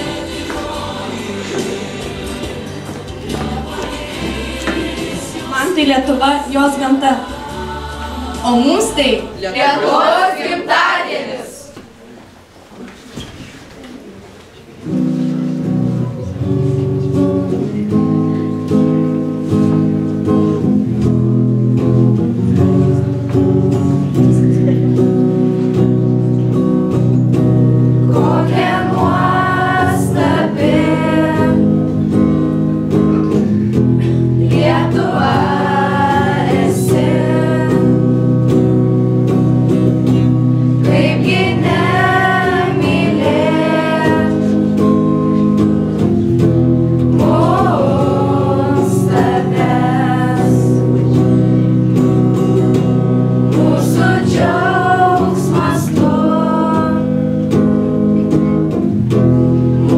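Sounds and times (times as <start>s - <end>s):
group of teenagers singing: 0.0s - 11.8s, 27.9s - 32.5s, 34.0s - 46.2s, 47.0s - 51.4s, 52.6s - 57.7s
electric guitar: 14.8s - 59.9s.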